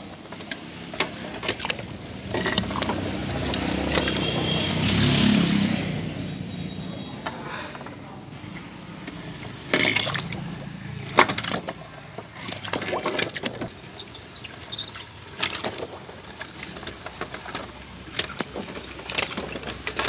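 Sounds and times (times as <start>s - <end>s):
motor vehicle passing: 2.1s - 7.8s
toy cars clinking on concrete: 9.0s - 13.4s, 14.2s - 20.0s.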